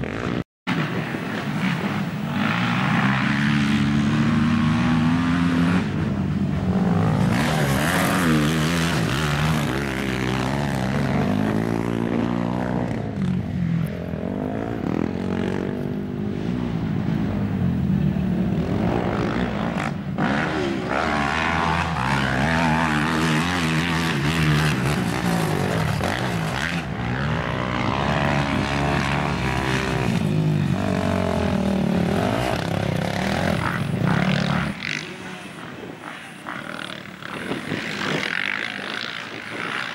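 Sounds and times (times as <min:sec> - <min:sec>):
quad bike engines revving: 0:00.0 - 0:39.9.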